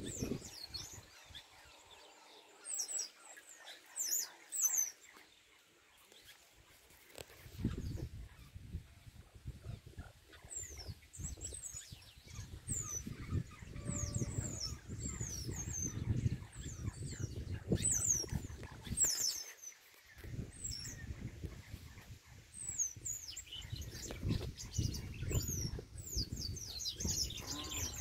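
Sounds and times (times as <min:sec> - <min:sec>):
blackbirds singing: 0:00.0 - 0:28.0.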